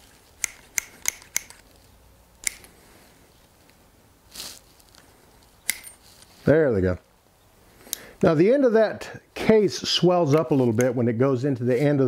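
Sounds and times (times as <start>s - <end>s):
sharp metallic revolver clicks: 0.4s - 1.6s, 2.4s - 2.7s, 5.6s - 5.9s
handling scrape: 4.3s - 6.5s.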